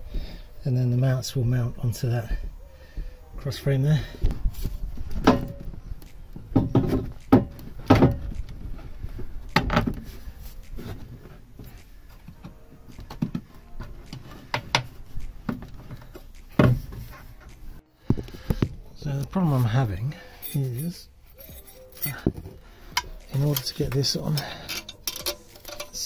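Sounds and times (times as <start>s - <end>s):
metal hardware clunks and knocks: 5.2s - 5.8s, 6.5s - 8.4s, 22.1s - 26.0s.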